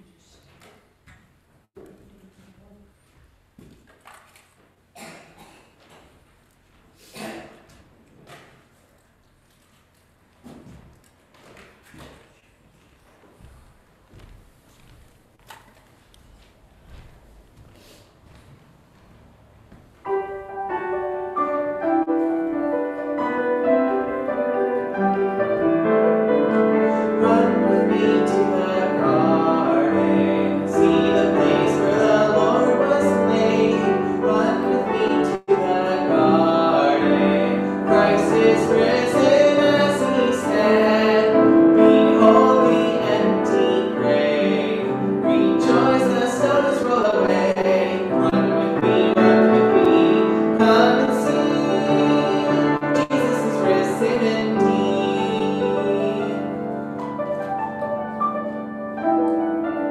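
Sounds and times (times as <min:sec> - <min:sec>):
upright piano playing hymn: 0:19.9 - 0:59.9.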